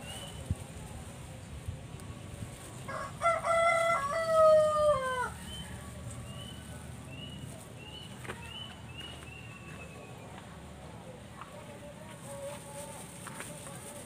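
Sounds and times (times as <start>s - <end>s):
rooster crowing: 2.9s - 6.1s.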